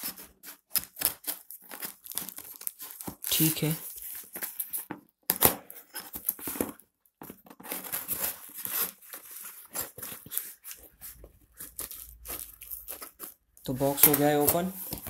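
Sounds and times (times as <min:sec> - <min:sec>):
scissors tearing packing tape: 0:00.0 - 0:03.9, 0:07.6 - 0:10.9, 0:11.5 - 0:13.4.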